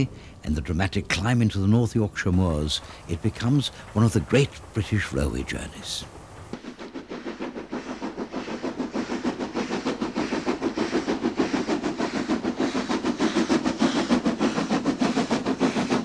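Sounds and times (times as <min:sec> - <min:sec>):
steam locomotive exhaust beats: 0:00.0 - 0:16.0.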